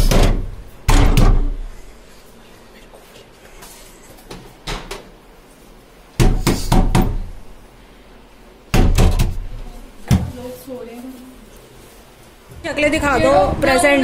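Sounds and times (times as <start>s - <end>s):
knocking on wooden door: 8.8s - 9.4s.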